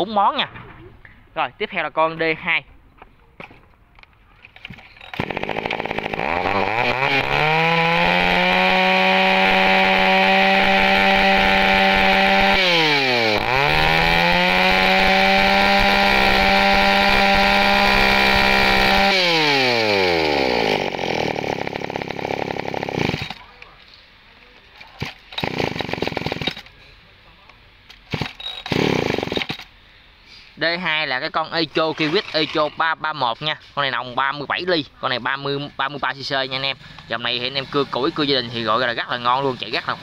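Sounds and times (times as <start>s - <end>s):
chainsaw revving: 5.1s - 23.5s, 25.0s - 26.7s, 28.1s - 29.7s, 36.6s - 40.0s.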